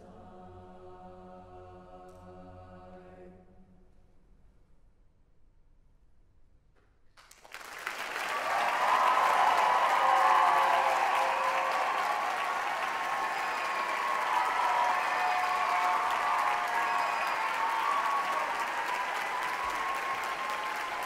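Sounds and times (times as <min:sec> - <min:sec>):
audience applause: 0:07.2 - 0:21.0.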